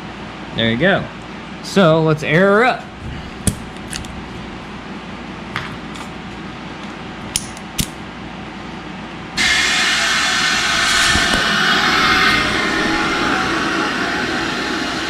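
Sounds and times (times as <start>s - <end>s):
compressed air hissing: 9.4s - 15.0s.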